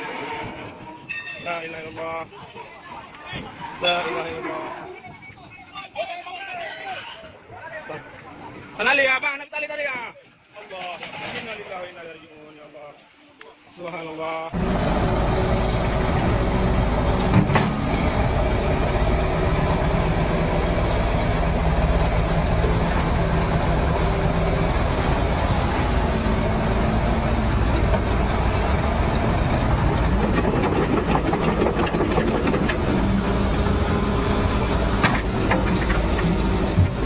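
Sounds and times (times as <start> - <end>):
diesel engines running: 14.6 - 37.0.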